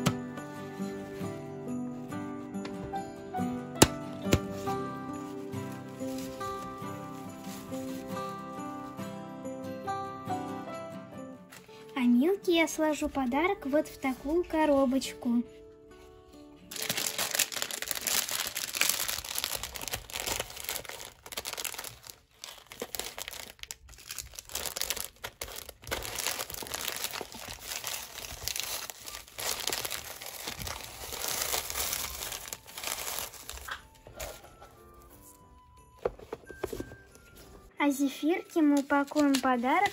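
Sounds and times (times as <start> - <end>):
soft background music: 0.0 - 39.9
plastic bags and paper crinkling: 4.1 - 9.0, 16.6 - 39.9.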